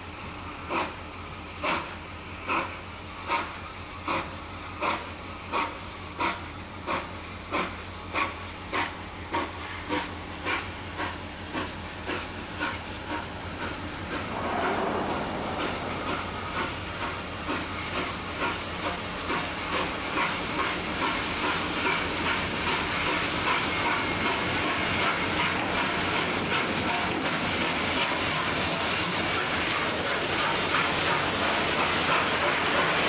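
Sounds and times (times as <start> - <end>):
steam hissing from locomotive: 0.0 - 33.0
steam locomotive exhaust beats: 0.0 - 33.0.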